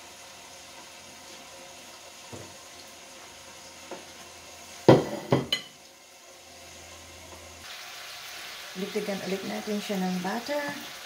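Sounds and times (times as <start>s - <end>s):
meat sizzling in pan: 0.0s - 11.0s
plate clattering on stone countertop: 4.9s - 5.8s.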